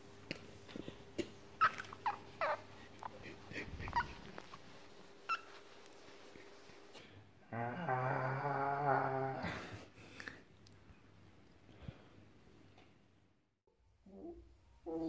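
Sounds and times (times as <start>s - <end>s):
fox kit squeaking: 5.3s - 5.5s.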